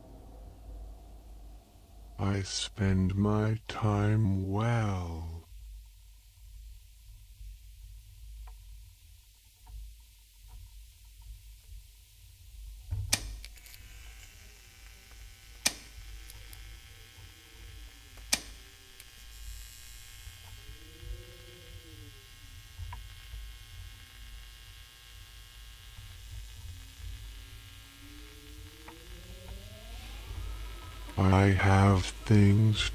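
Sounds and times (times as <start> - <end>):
soft rising and falling tones: 0.0 - 2.2, 26.0 - 32.9
faint hiss: 0.0 - 32.9
low droning hum: 0.0 - 32.9.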